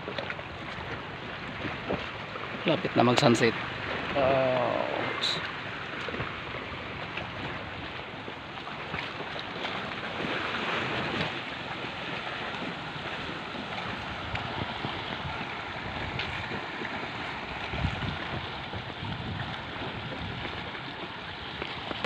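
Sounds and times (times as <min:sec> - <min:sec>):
water sloshing and splashing: 0:00.0 - 0:22.0
wind on microphone: 0:09.7 - 0:22.0.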